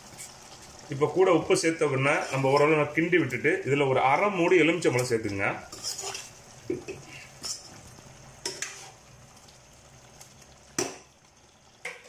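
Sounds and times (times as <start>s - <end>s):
metal spoon scraping a pot: 0.0s - 0.5s, 2.1s - 2.8s, 5.0s - 7.8s, 8.4s - 9.0s
curry sizzling: 0.0s - 12.0s.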